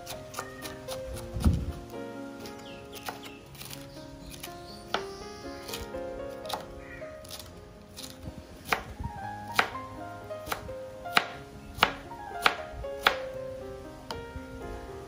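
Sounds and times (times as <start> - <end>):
knife chopping on cutting board: 2.4 - 3.8, 6.5 - 9.8, 10.4 - 13.2.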